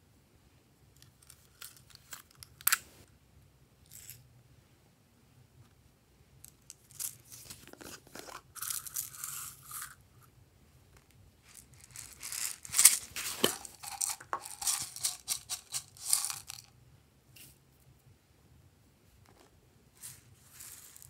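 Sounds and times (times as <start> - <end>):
plastic containers opened: 11.9 - 16.6.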